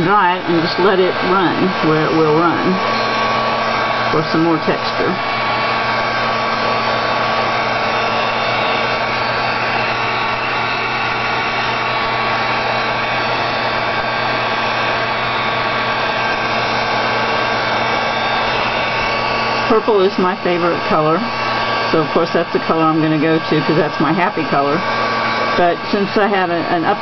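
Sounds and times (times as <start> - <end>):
handheld dryer blowing: 0.0 - 27.0.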